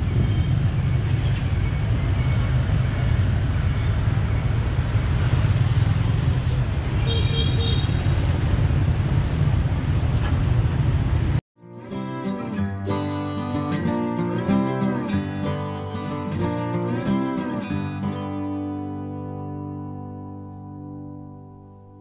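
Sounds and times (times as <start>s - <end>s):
road traffic rumble: 0.0s - 11.4s.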